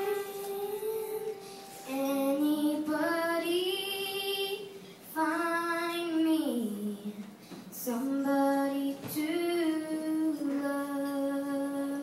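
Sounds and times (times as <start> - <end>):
girl singing into a microphone: 0.0 - 12.0.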